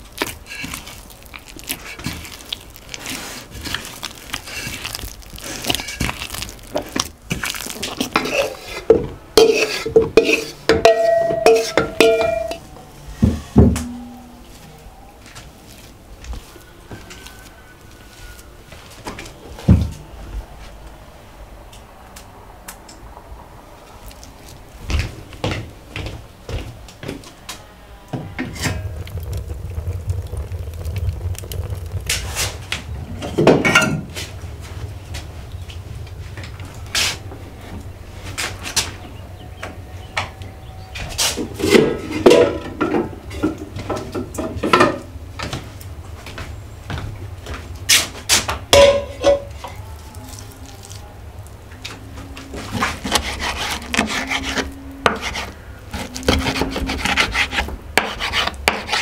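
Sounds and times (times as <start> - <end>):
crockery and utensils clattering: 8.2 - 12.6
low steady hum: 27.6 - 58.7.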